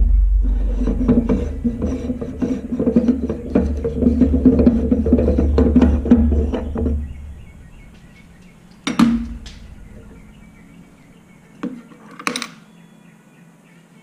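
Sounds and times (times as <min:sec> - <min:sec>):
low rhythmic sound: 0:00.0 - 0:11.8.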